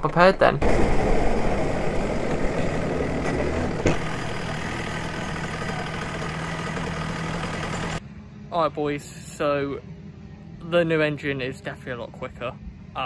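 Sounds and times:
kart engine at low revs: 0.6 - 8.0.

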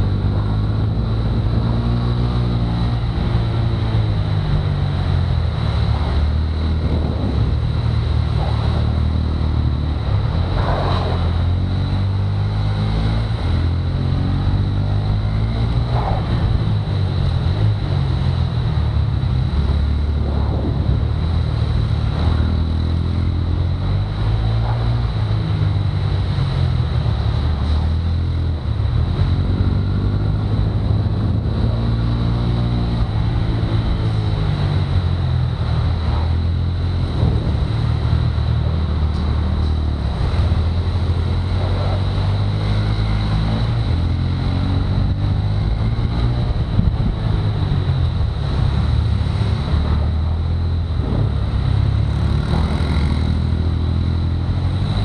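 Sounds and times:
go-kart engine revving: 21.5 - 55.0.

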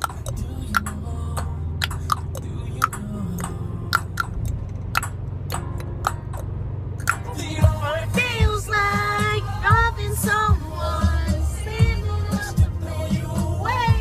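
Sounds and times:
car cabin rumble: 0.0 - 14.0
sharp clicks: 1.8 - 7.2.

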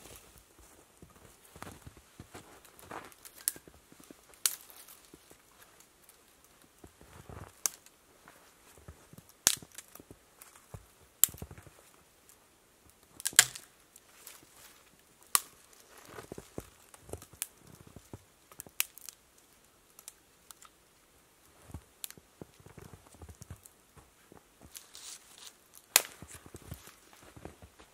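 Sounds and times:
branches rustling: 0.0 - 27.9
twigs snapping: 3.1 - 8.0, 9.2 - 11.7, 13.0 - 20.8, 22.0 - 23.7, 24.7 - 27.6.

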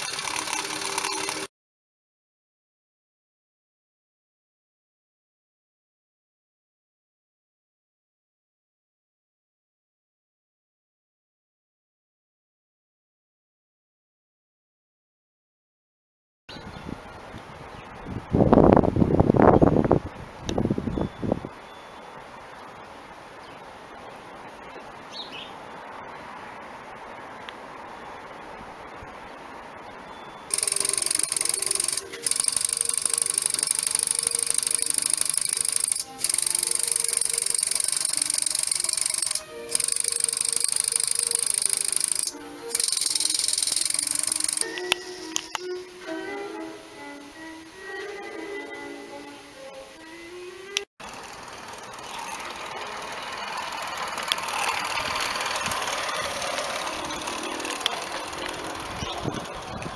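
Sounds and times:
model engine clattering and hissing: 0.0 - 1.5, 51.0 - 59.9
outdoor ambience: 0.0 - 1.5, 16.5 - 59.9
violin music: 39.4 - 41.0, 42.3 - 42.7, 44.6 - 50.9, 52.5 - 59.9.

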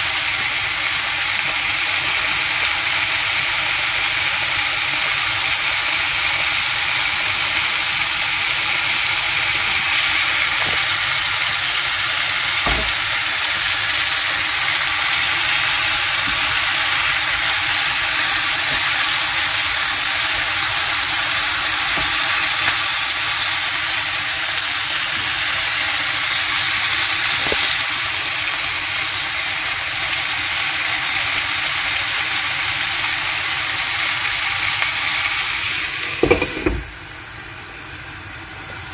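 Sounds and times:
vegetables sizzling in oil: 0.0 - 38.9
spatula knocking on pan: 12.6 - 13.3, 36.2 - 36.9.

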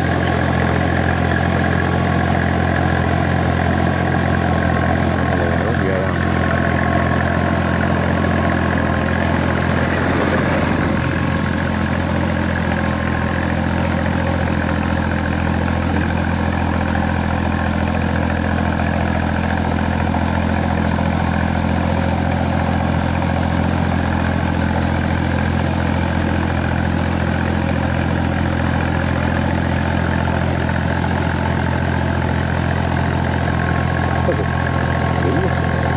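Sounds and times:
tractor diesel engine under load: 0.0 - 35.9.

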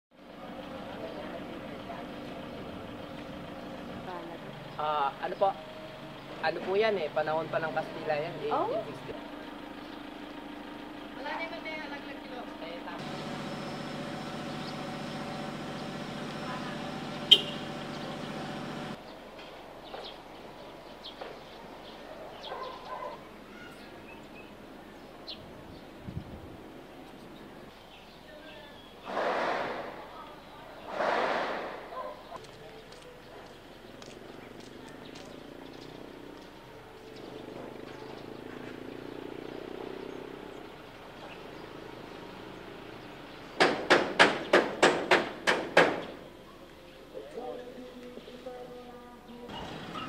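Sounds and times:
low hum: 13.0 - 19.0
high bird chirps: 16.9 - 18.5
domestic fowl call: 17.2 - 17.9
hammering with ringing blows: 43.6 - 46.1.

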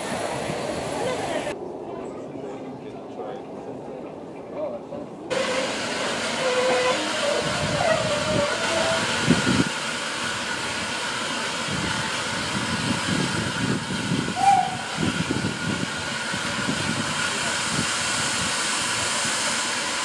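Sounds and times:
steam hiss: 5.3 - 20.0.

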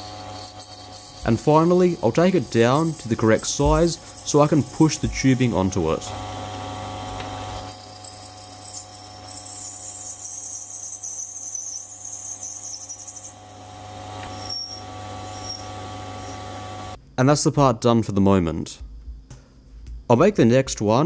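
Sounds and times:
hiss of tool cutting plastic: 0.0 - 6.0
lathe motor hum: 0.1 - 10.2, 13.4 - 17.0.

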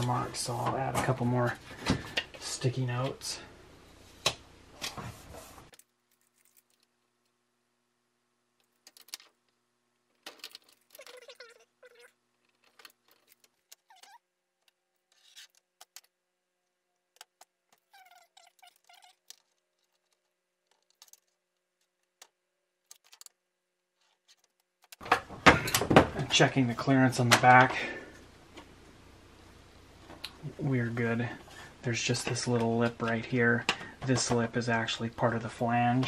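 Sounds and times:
small clicks and rustles: 5.7 - 7.4, 8.6 - 16.2, 17.1 - 23.4, 24.0 - 25.1
short squeaks: 10.7 - 14.2, 17.7 - 19.6.

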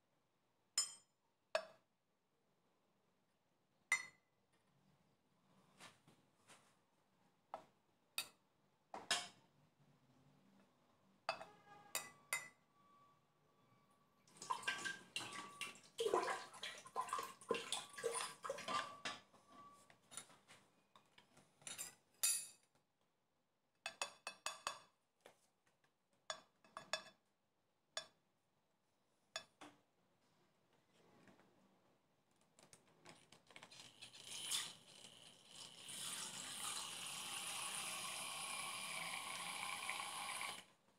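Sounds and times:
liquid pouring: 14.3 - 19.0, 33.5 - 40.6
utensils clinking on pots and bowls: 18.2 - 19.3.

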